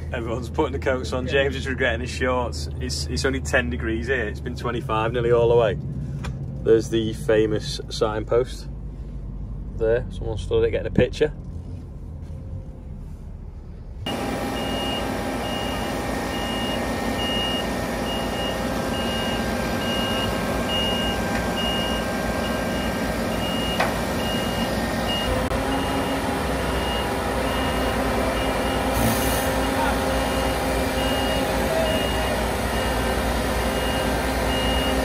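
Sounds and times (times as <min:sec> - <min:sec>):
diesel engine running: 0:00.0 - 0:35.0
reversing alarm beeping: 0:14.1 - 0:35.0.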